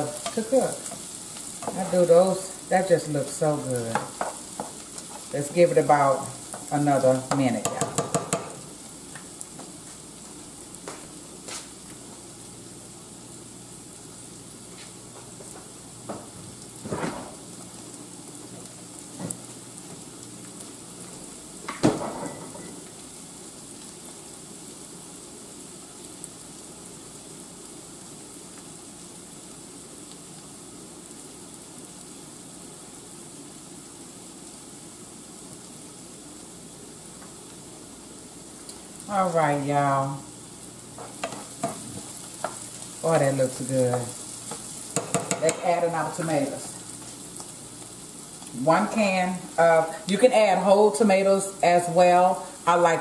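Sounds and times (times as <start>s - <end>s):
onions sizzling in a skillet: 0.0s - 53.0s.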